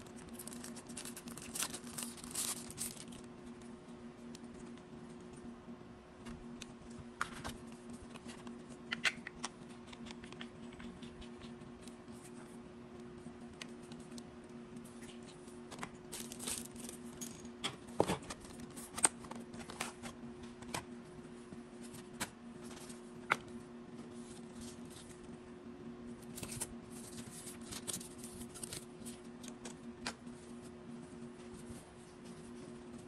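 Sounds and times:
paper packaging rustling: 0:00.1 - 0:03.3, 0:16.1 - 0:17.1, 0:26.3 - 0:29.2.

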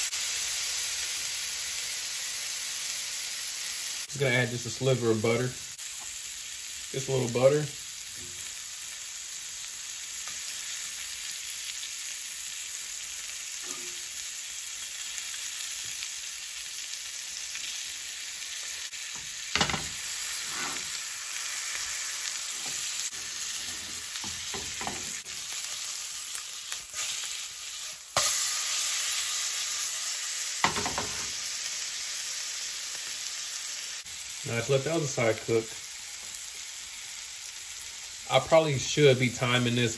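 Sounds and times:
fish sizzling in a pan: 0:00.0 - 0:39.9
spatula scraping a pan: 0:19.6 - 0:21.0, 0:26.8 - 0:28.4.

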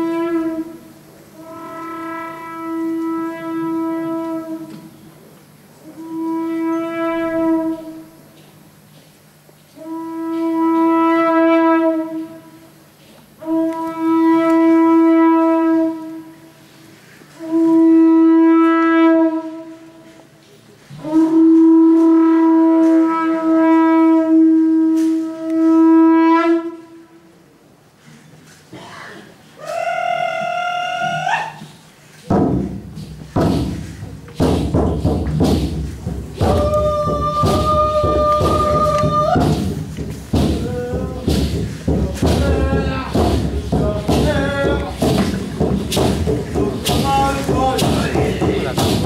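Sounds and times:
conch shell trumpet blasts: 0:00.0 - 0:04.8, 0:05.8 - 0:08.2, 0:09.8 - 0:12.7, 0:13.4 - 0:16.5, 0:17.4 - 0:20.2, 0:21.0 - 0:27.3.

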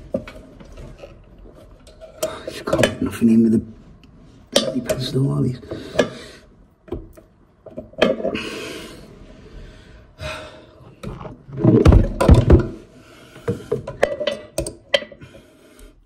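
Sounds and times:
person breathing hard: 0:08.3 - 0:11.0, 0:15.1 - 0:16.0.

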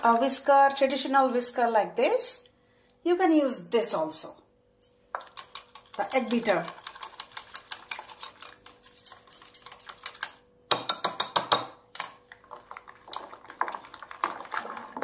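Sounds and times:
whisk clicking against glass bowl: 0:05.2 - 0:11.6.

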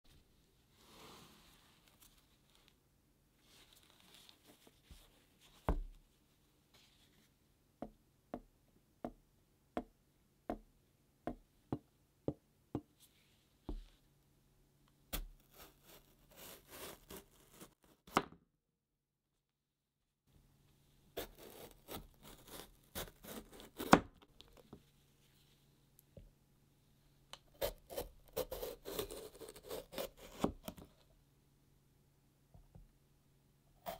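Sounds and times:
knife cutting bell pepper: 0:15.1 - 0:18.4, 0:21.2 - 0:24.2, 0:27.4 - 0:30.9.

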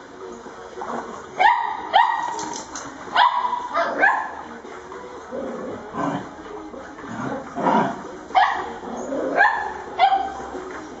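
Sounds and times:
small dogs barking and yipping: 0:01.4 - 0:04.5, 0:07.8 - 0:10.6.

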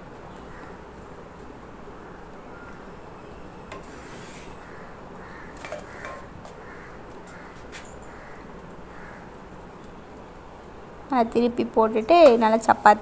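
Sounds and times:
low hiss of cooking flatbread: 0:00.0 - 0:13.0
spatula scraping a pan: 0:03.7 - 0:04.6, 0:05.6 - 0:06.3.

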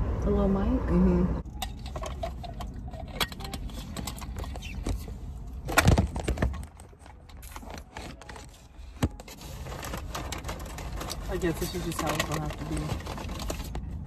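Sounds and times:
food packaging rustling: 0:06.5 - 0:14.0.

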